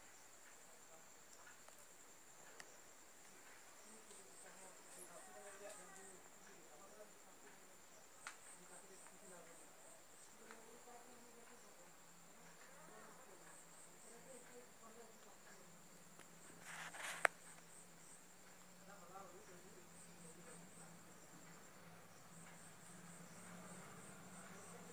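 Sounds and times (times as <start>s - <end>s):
crickets chirping: 0.0s - 24.9s.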